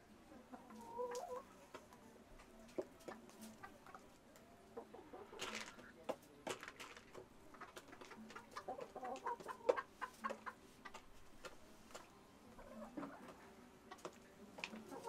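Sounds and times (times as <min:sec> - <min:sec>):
chickens clucking: 0:00.0 - 0:15.0.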